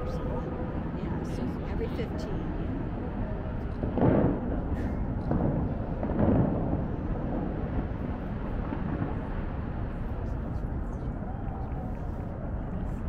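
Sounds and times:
low rumble of water: 0.0s - 13.0s
fountain water booms: 3.8s - 10.3s.

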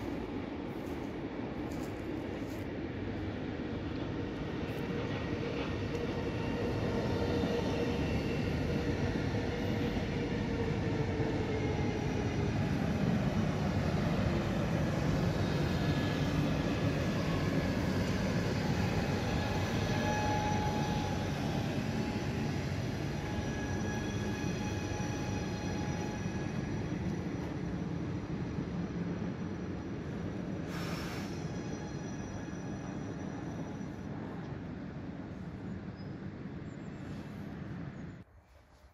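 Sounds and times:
train wheels rumbling on rails: 0.0s - 36.2s
train motor whine: 17.2s - 27.6s.

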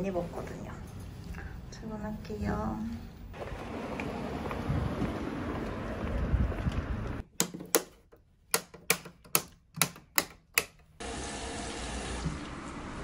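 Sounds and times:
outdoor street noise: 2.9s - 7.3s
light switches clicking: 8.5s - 10.9s.

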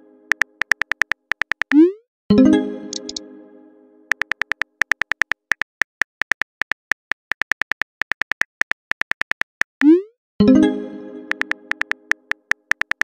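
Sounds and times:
chiming message tone: 2.3s - 3.6s, 10.4s - 12.1s
keyboard click taps: 2.9s - 3.2s, 11.3s - 13.0s.

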